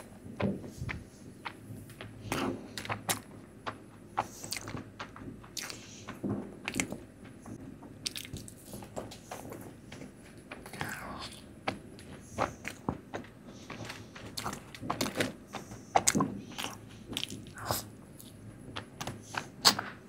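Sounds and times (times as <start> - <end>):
mouth clicks and smacks: 4.2 - 4.8, 5.5 - 5.9, 8.0 - 8.6
sweets being bitten and chewed: 4.2 - 7.0, 8.0 - 9.5, 10.4 - 19.9.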